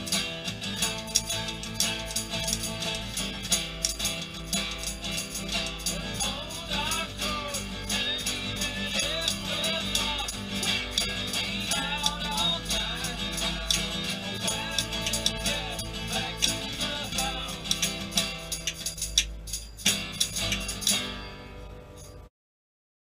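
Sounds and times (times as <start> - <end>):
acoustic guitar strumming: 0.0 - 22.3
man singing: 5.8 - 18.5.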